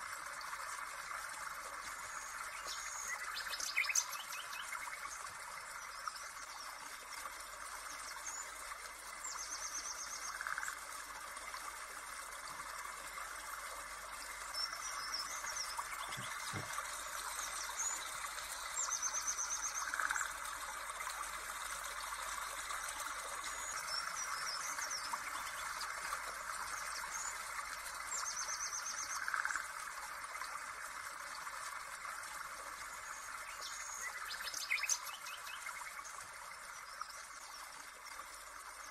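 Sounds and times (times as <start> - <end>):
birds chirping and trilling: 14.8 - 16.8
soft thump: 16.0 - 16.8.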